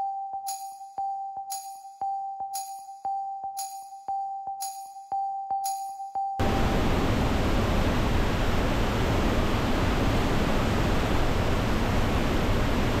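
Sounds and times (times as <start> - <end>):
waterfall roaring: 6.4 - 13.0.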